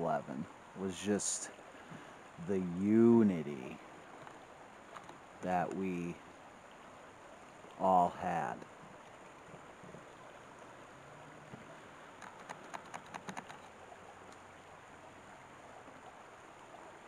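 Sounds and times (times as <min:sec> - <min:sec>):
stream water rushing over rocks: 0:00.0 - 0:17.0
sharp clicks: 0:12.2 - 0:13.7.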